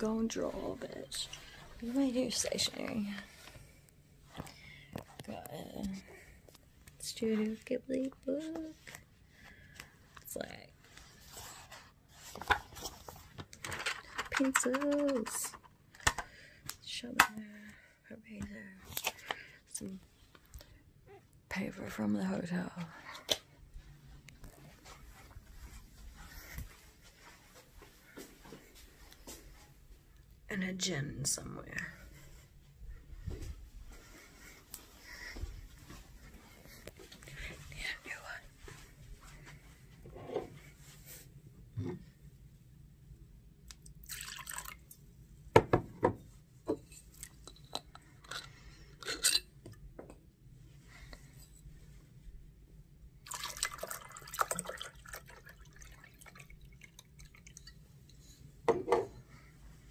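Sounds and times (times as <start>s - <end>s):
low room hum: 0.0s - 59.9s
pencils and paper rustling: 7.2s - 15.8s.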